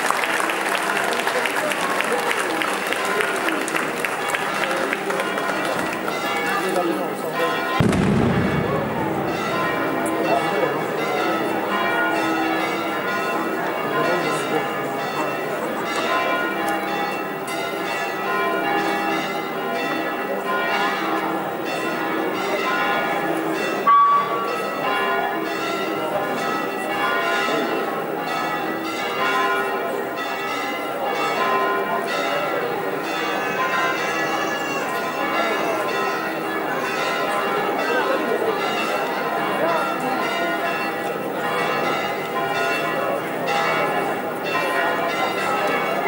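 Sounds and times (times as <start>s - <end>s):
church bells pealing: 0.0s - 46.0s.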